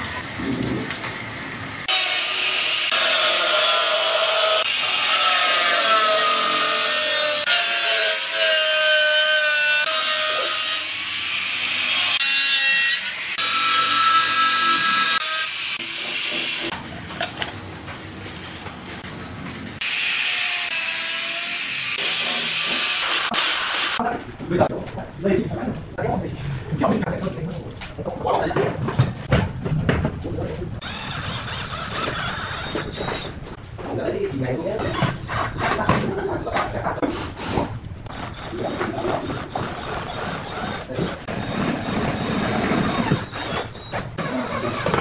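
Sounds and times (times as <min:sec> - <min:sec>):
angle grinder cutting steel: 0:01.8 - 0:16.8, 0:19.8 - 0:24.0.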